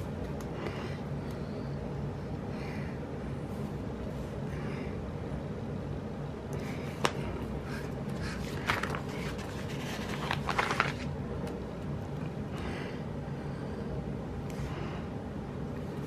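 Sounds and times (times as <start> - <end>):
steady low hum: 0.0 - 16.0
paper sheets rustling: 7.8 - 11.1.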